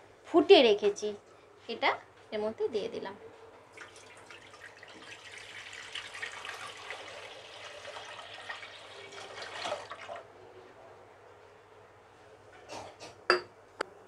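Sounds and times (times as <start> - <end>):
milk pouring and splashing: 3.8 - 10.3.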